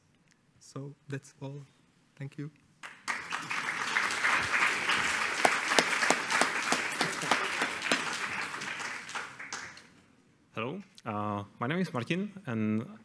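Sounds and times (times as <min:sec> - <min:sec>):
loud single claps: 0:02.8 - 0:09.9
audience applauding: 0:02.8 - 0:10.0.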